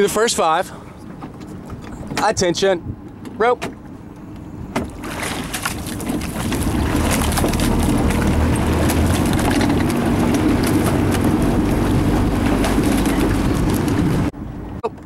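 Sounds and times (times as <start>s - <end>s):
motorboat running: 0.0s - 15.0s
wind on microphone: 5.0s - 14.8s.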